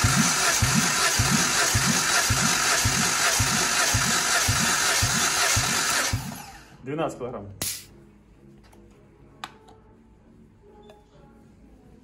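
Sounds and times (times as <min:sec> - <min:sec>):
starter motor cranking engine: 0:00.0 - 0:06.8.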